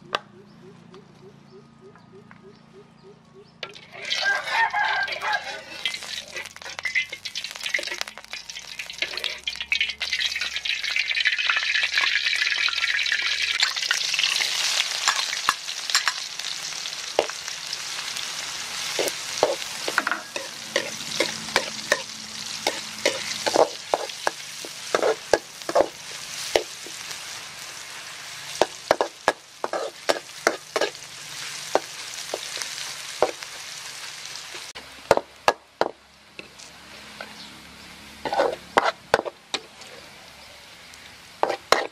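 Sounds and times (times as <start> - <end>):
metal spatula scraping wok: 3.6 - 16.4, 18.6 - 33.7, 38.1 - 40.2, 41.4 - 41.9
shallots sizzling in oil: 3.7 - 41.9.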